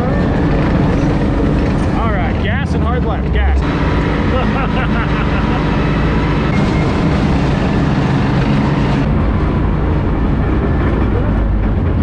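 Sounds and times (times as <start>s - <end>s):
tank engine running: 0.0s - 12.0s
track clatter: 0.0s - 12.0s.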